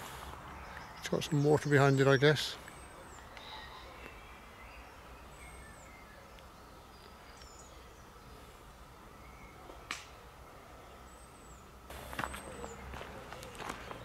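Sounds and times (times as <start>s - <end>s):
bird chirps: 0.5s - 8.1s.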